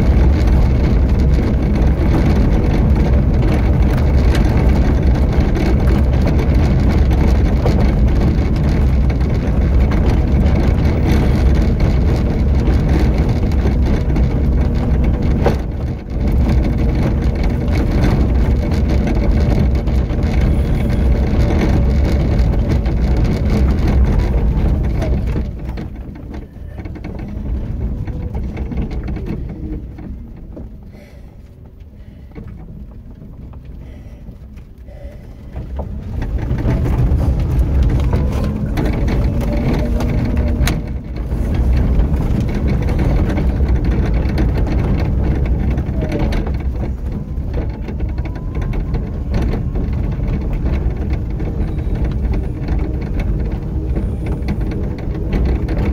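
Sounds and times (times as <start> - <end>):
vehicle rumbling on rough path: 0.0 - 55.9.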